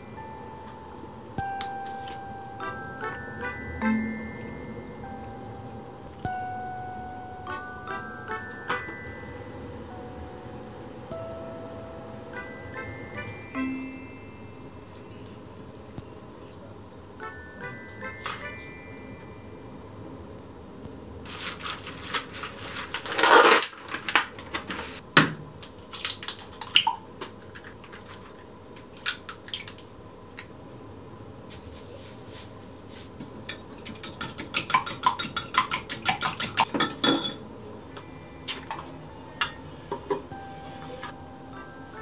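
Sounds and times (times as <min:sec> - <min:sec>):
eggs beaten in glass cup: 0:33.0 - 0:37.4
utensils clinking against dishes: 0:33.0 - 0:37.4.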